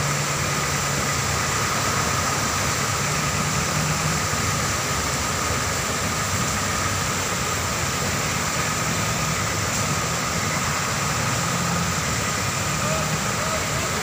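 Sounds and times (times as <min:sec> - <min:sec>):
floodwater pouring over spillway: 0:00.0 - 0:14.0
vehicle engine idling: 0:00.0 - 0:14.0.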